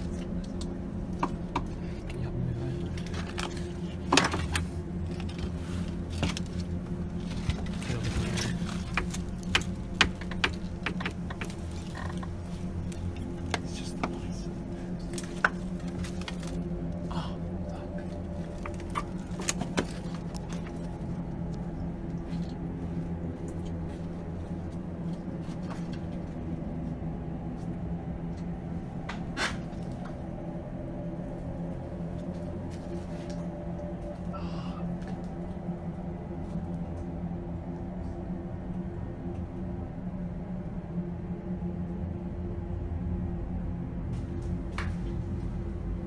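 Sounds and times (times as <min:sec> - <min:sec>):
low droning hum: 0:00.0 - 0:46.0
sharp clicks and knocks: 0:08.4 - 0:12.4.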